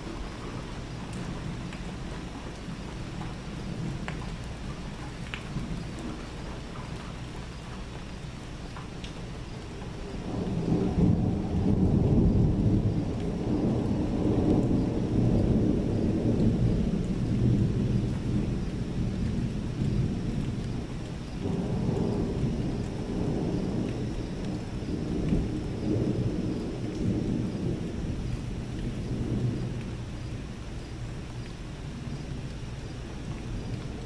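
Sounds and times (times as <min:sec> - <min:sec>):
rain hiss: 0:00.0 - 0:34.0
rolling thunder: 0:09.8 - 0:31.3.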